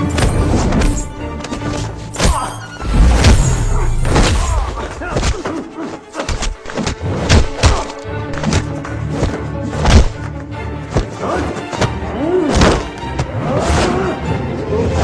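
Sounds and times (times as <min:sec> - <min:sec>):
dramatic score music: 0:00.0 - 0:15.0
punch and kick impacts: 0:06.3 - 0:10.2, 0:12.5 - 0:12.9.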